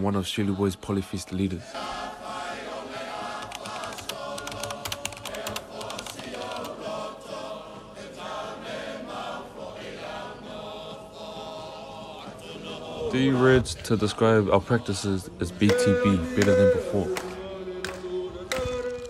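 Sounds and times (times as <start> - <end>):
choral singing: 0.0 - 19.0
keyboard key clicks: 3.4 - 6.8.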